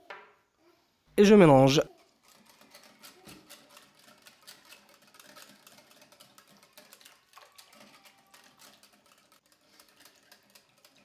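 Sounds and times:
whisk clicking against glass bowl: 0:02.3 - 0:11.0.

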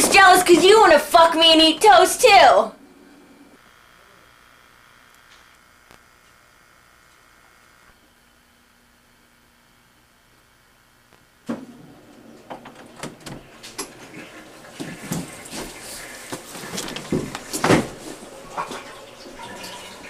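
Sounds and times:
clicks bumps and shuffling: 0:12.5 - 0:18.8.

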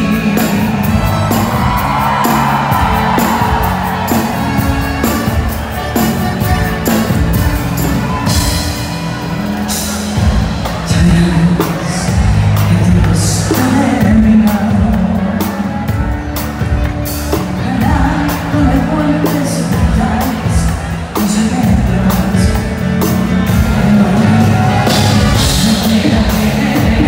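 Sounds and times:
pop band playing: 0:00.0 - 0:27.0
woman singing: 0:10.9 - 0:15.7, 0:17.6 - 0:22.7, 0:23.5 - 0:27.0.

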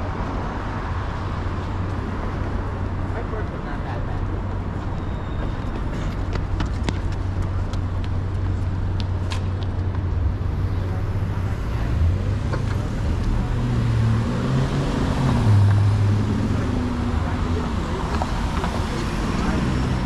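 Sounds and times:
traffic rumble: 0:00.0 - 0:20.0
passing vehicle engine: 0:10.1 - 0:20.0.

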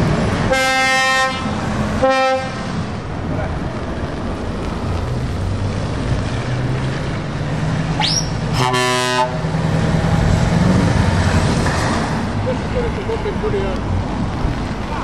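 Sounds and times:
truck engine droning: 0:00.0 - 0:15.0
truck air horn blast: 0:00.5 - 0:02.7, 0:08.5 - 0:09.4
rising whistle: 0:08.0 - 0:08.4.

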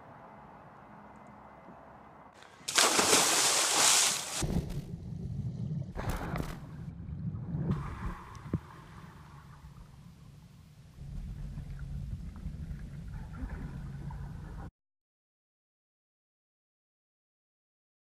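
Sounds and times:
water splashing: 0:02.4 - 0:04.7
low rumble: 0:04.4 - 0:14.7.

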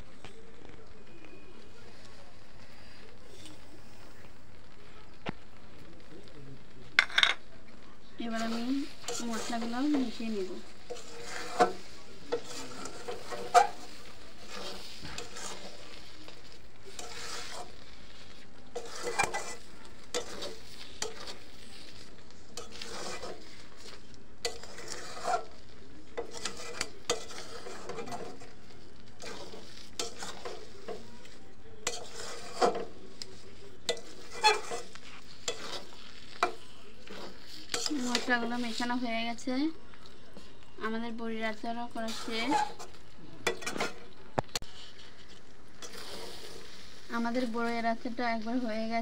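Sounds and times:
pickle sizzling: 0:00.0 - 0:49.0
metal spatula scraping a pan: 0:08.2 - 0:39.5, 0:41.3 - 0:49.0.

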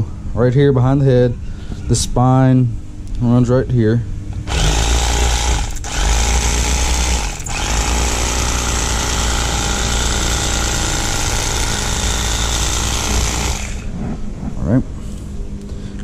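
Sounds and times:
electric knife motor humming: 0:04.4 - 0:14.0.

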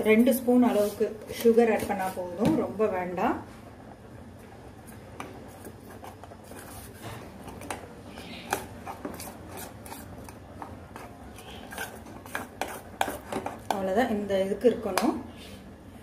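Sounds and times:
ladle scraping a steel pot: 0:11.0 - 0:13.7.

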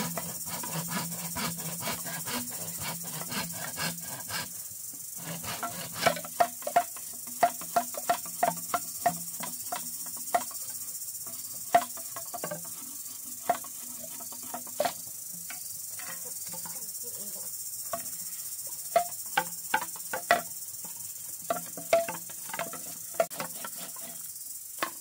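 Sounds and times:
insects chirring: 0:00.0 - 0:25.0
machete knocking on bamboo: 0:05.5 - 0:10.5, 0:19.0 - 0:20.5, 0:21.5 - 0:23.5.

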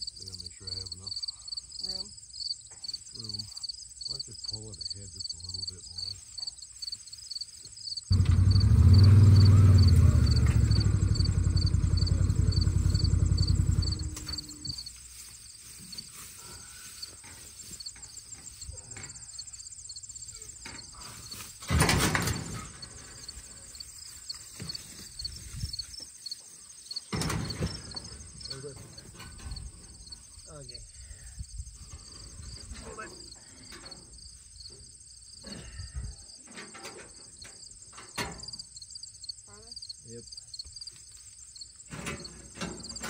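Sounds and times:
crickets chirping: 0:00.0 - 0:43.0
small engine running: 0:08.1 - 0:14.8.

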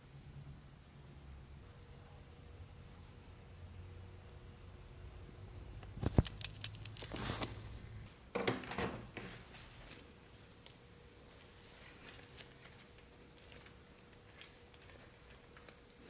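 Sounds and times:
rustling: 0:09.2 - 0:16.0.

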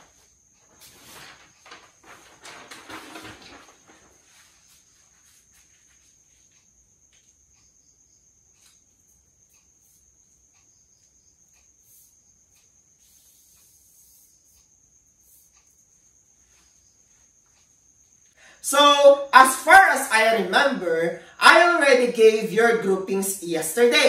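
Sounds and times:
paper chart rustling: 0:00.0 - 0:06.5.

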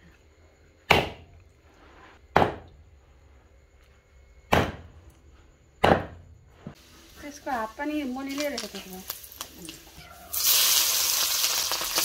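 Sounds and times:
knife chopping meat and bone: 0:00.9 - 0:01.2, 0:02.3 - 0:02.7, 0:04.5 - 0:04.9, 0:05.8 - 0:06.2.

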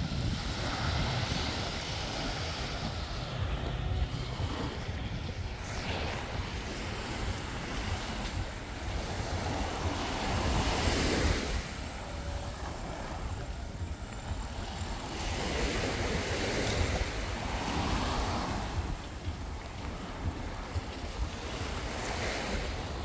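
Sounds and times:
waves washing on shore: 0:00.0 - 0:23.0
wind rumbling on microphone: 0:00.0 - 0:23.0.

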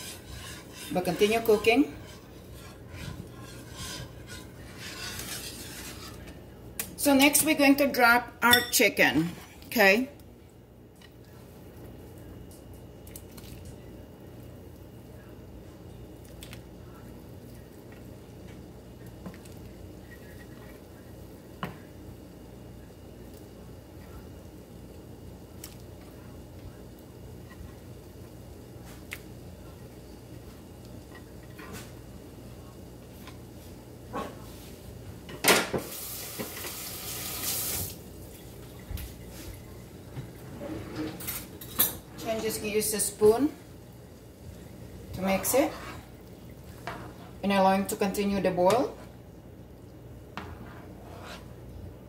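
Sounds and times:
low steady hum: 0:00.0 - 0:52.0
water running from tap: 0:35.9 - 0:38.0.

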